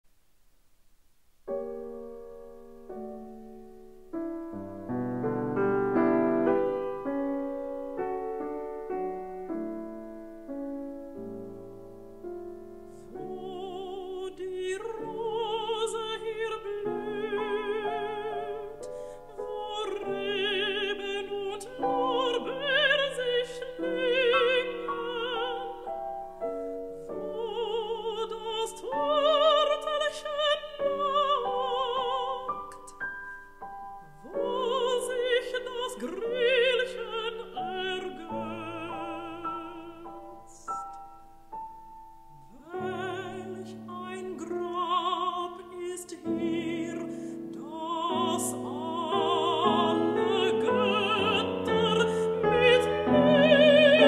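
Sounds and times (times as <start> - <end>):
solo piano: 1.4 - 54.0
woman singing with vibrato: 13.1 - 26.0, 27.1 - 33.0, 34.0 - 40.9, 42.4 - 54.0.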